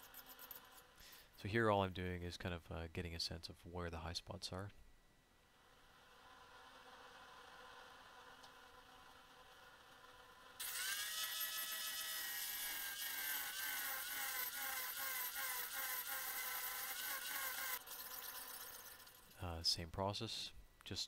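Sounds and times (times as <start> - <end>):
angle grinder grinding steel: 10.6 - 19.4.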